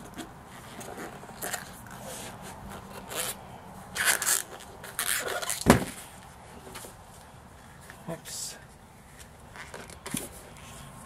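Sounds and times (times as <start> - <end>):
rubber tube rubbing and scraping: 0.0 - 6.9, 9.1 - 11.0.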